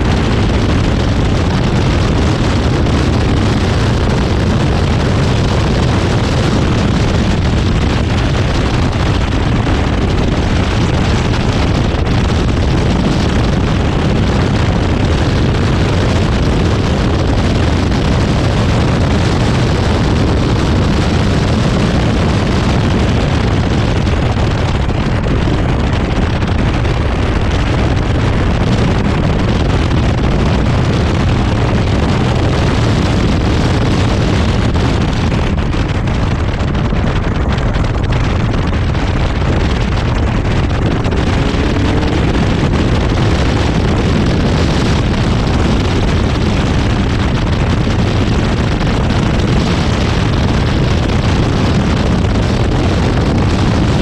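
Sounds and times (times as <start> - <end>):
car engine running hard: 0.0 - 54.0
wind buffeting on microphone: 0.0 - 54.0.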